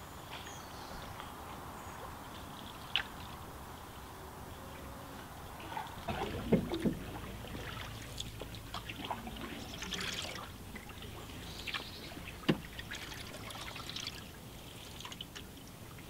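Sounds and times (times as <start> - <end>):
water dripping from paddle: 2.3 - 3.5, 5.7 - 16.0
paddle stroke splashes: 5.5 - 16.0.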